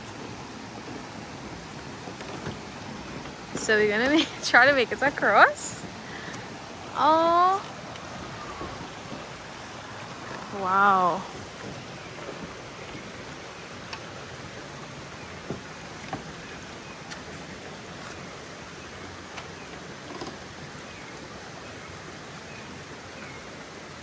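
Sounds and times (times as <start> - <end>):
water hissing: 0.0 - 24.0
faint clicks and knocks: 11.6 - 14.1.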